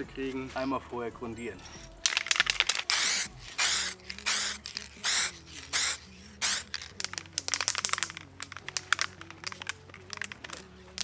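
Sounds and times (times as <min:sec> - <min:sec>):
aerosol spray can bursts: 0:02.3 - 0:08.2.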